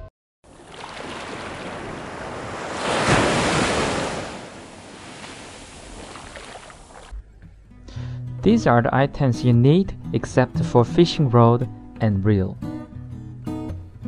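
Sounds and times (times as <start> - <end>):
ocean waves breaking: 0.5 - 7.1.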